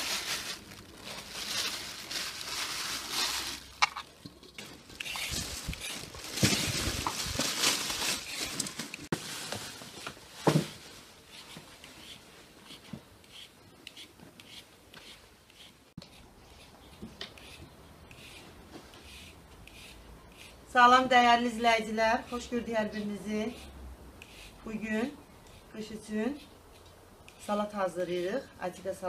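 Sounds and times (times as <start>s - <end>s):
peeler scraping carrots: 4.9s - 6.8s, 11.3s - 18.4s, 19.0s - 26.5s.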